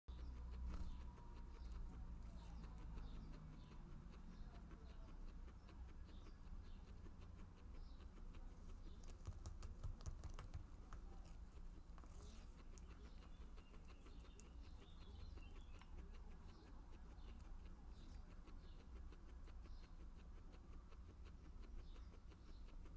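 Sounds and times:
guinea pig chewing leaves: 0:00.1 - 0:22.9.

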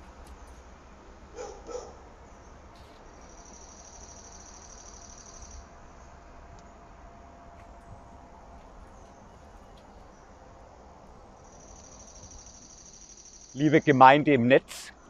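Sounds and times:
distant dog barking: 0:01.3 - 0:02.1.

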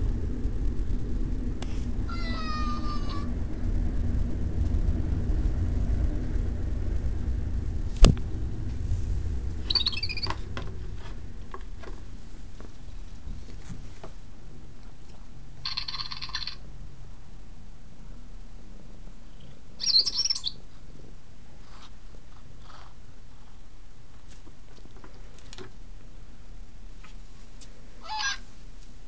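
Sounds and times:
toy hamster electronic chirps: 0:15.7 - 0:16.6.

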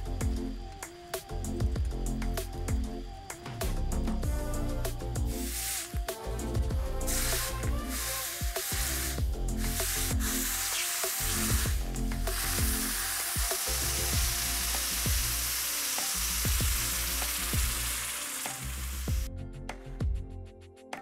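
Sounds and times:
hot blade sizzling in water: 0:04.5 - 0:19.3.

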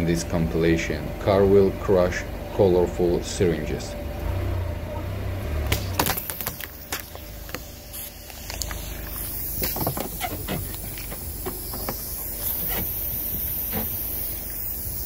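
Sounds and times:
plastic syringes cracking and popping: 0:05.7 - 0:07.6, 0:08.2 - 0:11.2
steady hiss: 0:05.9 - 0:15.0.

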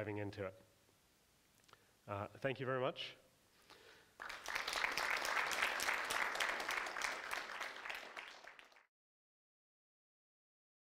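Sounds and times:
audience applauding: 0:04.2 - 0:08.9.

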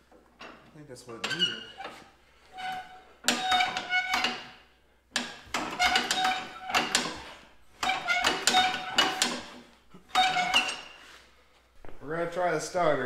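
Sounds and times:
metallic clanking and rattling: 0:02.6 - 0:04.6, 0:05.2 - 0:11.0.

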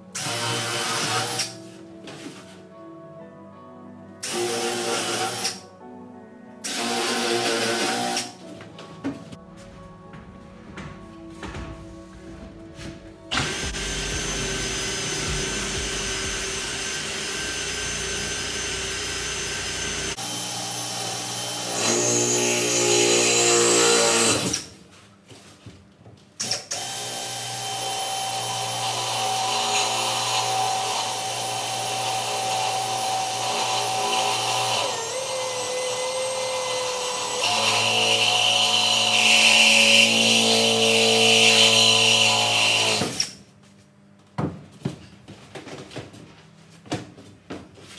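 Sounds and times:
electric drill drilling: 0:00.2 - 0:01.6, 0:04.2 - 0:05.6, 0:06.6 - 0:08.4, 0:13.3 - 0:24.7, 0:26.4 - 0:43.4.

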